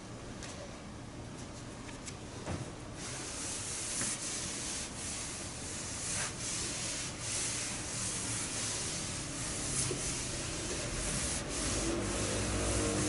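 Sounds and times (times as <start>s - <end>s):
sandpaper rubbing on primer: 3.0s - 13.0s.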